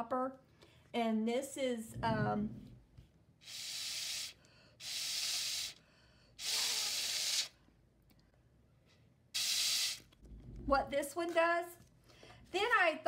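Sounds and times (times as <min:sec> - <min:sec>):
breath blown through a straw: 0:03.4 - 0:07.6, 0:09.4 - 0:10.0.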